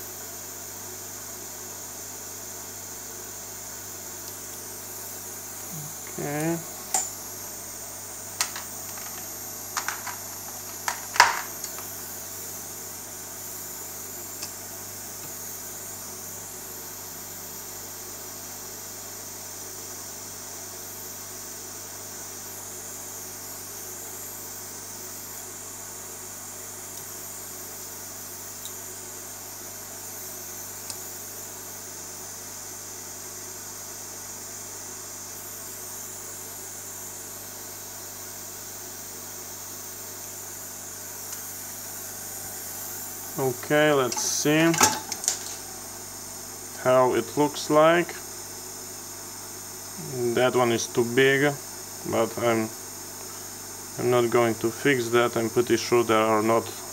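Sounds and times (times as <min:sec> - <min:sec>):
low hiss and hum: 0:00.0 - 0:56.9.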